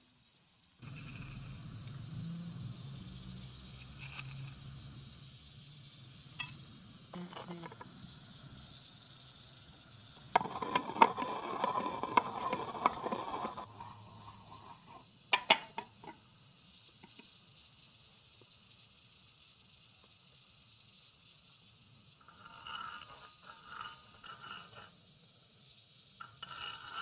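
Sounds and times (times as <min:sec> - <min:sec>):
steady hiss: 0:00.0 - 0:27.0
pestle grinding in stone mortar: 0:10.2 - 0:16.1.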